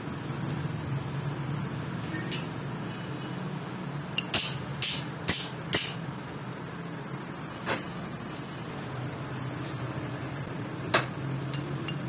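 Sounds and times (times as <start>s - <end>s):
sharp metallic clinks: 4.2s - 6.0s.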